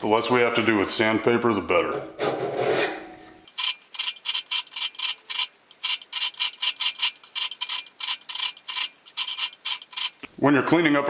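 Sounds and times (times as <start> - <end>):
file scraping a steel blade: 2.5 - 10.3.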